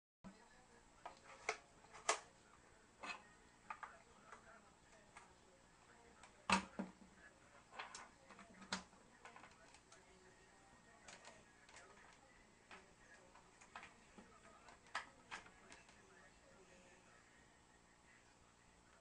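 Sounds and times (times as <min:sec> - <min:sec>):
plastic speaker clicks and knocks: 0:06.5 - 0:07.0.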